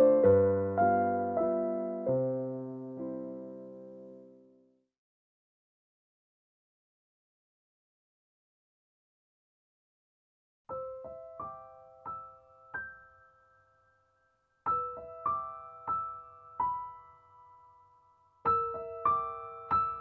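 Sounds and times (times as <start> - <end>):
slow solo piano music: 0.0 - 4.7, 10.7 - 20.0.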